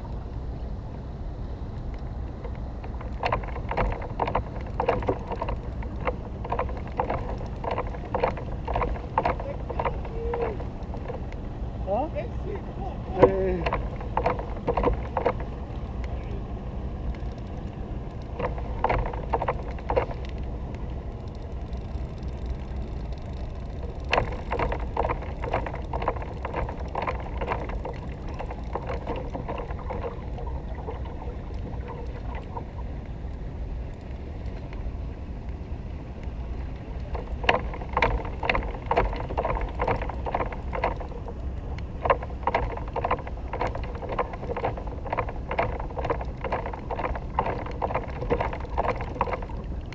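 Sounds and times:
steady low rumble: 0.0s - 49.9s
fishing reel clicking: 4.6s - 11.2s, 17.0s - 29.9s, 45.6s - 49.6s.

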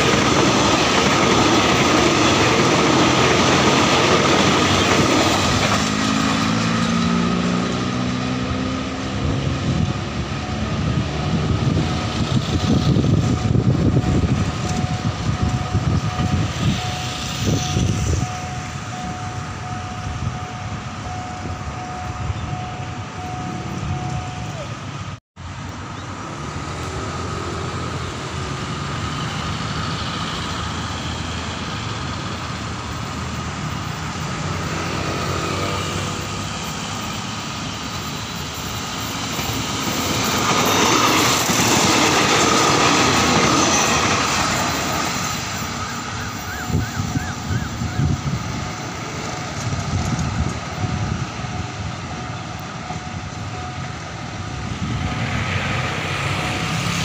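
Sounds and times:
diesel railcar passing: 0.0s - 57.0s
train wheel clacks: 36.6s - 46.8s.

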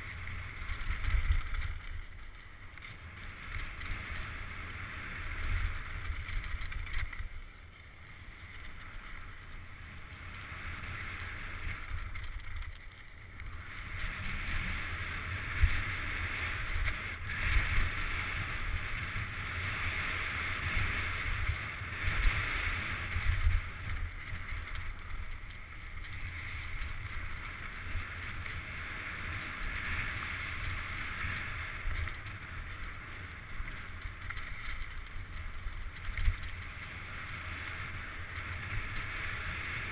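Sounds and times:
wind buffeting camera: 0.0s - 7.4s.

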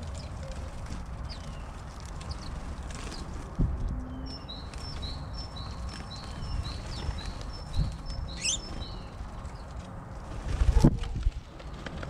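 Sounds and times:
bird chirping: 4.0s - 9.7s.

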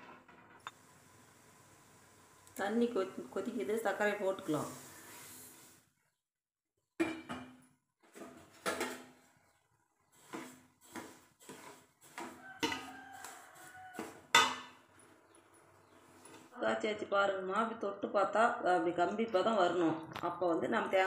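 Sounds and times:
metal spoon scraping metal pot: 10.1s - 16.0s.

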